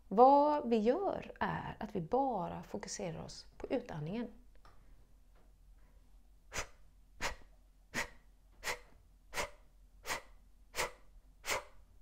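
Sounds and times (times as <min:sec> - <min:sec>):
woman's forceful exhalations: 0:06.5 - 0:11.8.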